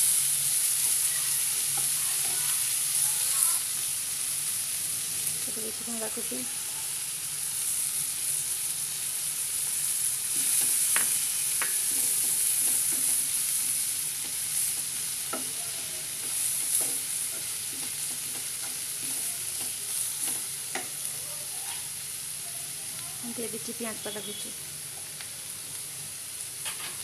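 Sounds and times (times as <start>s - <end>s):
vegetables sizzling in oil: 0.0s - 27.0s
spatula tapping pan: 10.4s - 21.0s.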